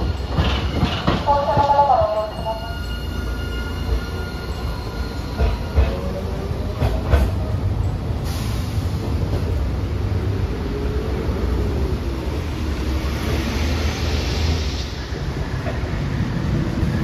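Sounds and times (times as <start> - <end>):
tram rumbling on track: 0.0 - 17.0
hiss: 8.2 - 9.1.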